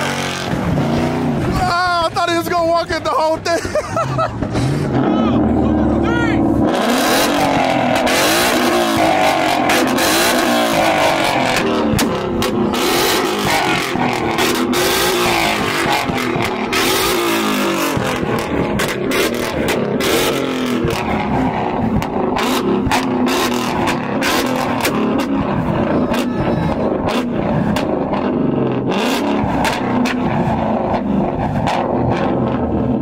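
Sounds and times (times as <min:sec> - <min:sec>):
car engine revving: 0:00.0 - 0:33.0
exhaust pops and cracks: 0:07.4 - 0:28.3.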